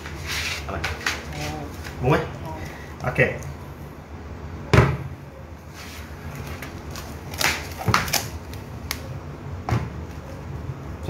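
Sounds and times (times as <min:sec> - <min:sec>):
steady low hum: 0:00.0 - 0:11.0
plastic rustling: 0:05.8 - 0:09.0.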